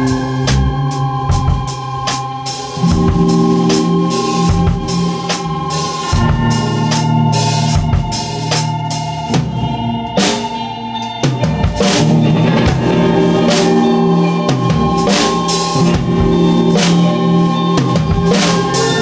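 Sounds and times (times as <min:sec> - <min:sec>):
drum kit steady beat: 0:00.0 - 0:19.0
organ chords: 0:00.0 - 0:19.0.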